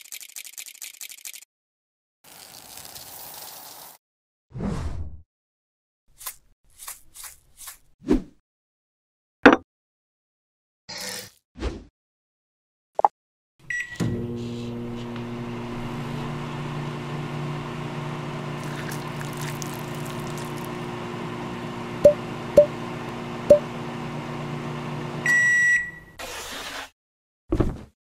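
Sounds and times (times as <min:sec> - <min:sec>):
microwave beep: 0:13.7 - 0:14.3, 0:22.0 - 0:22.8, 0:23.4 - 0:23.7, 0:25.2 - 0:26.2
microwave oven humming: 0:13.7 - 0:26.1.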